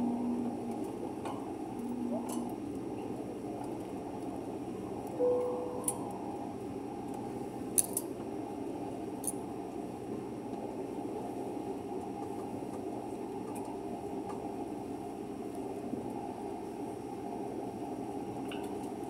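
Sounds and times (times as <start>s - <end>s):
soft tone: 5.2s - 6.4s.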